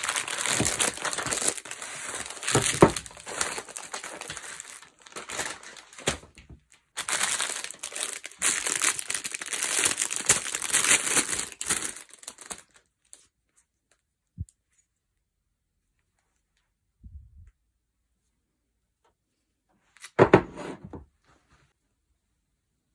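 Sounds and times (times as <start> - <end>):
plastic bag crinkling: 0.0 - 12.9.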